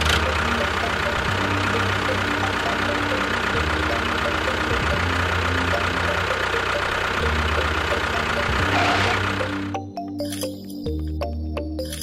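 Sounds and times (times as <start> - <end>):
engine idling: 0.0 - 9.9.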